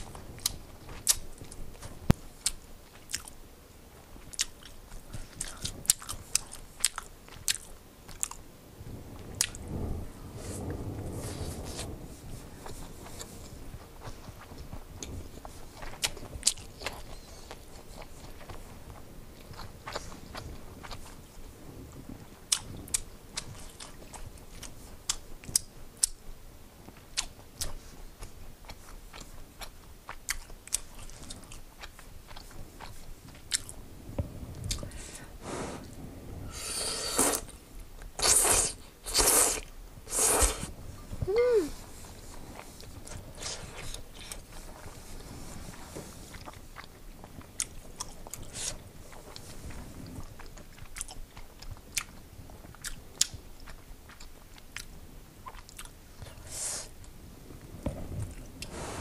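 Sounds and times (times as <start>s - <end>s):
wet mouth clicks of chewing: 0.0s - 3.4s, 4.2s - 8.4s, 9.4s - 9.6s, 19.4s - 21.1s, 22.5s - 26.2s, 27.0s - 33.7s, 34.5s - 35.0s, 42.5s - 44.9s, 46.3s - 56.4s
loud slurps of noodles: 35.4s - 37.6s, 38.2s - 40.8s.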